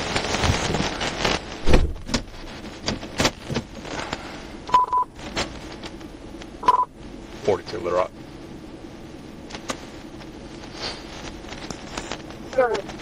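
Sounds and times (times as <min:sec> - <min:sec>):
police radio beeps: 0:04.7 - 0:05.1, 0:06.6 - 0:06.9.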